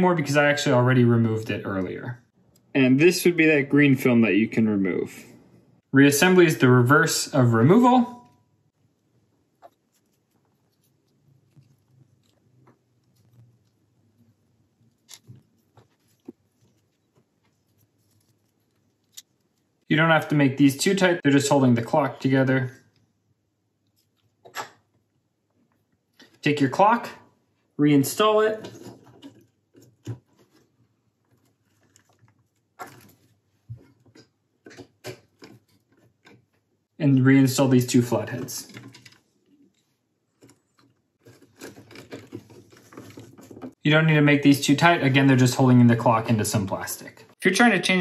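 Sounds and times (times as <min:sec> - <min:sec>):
handling small plastic parts: 0:09.5 - 0:19.8, 0:28.6 - 0:36.7, 0:38.6 - 0:43.8.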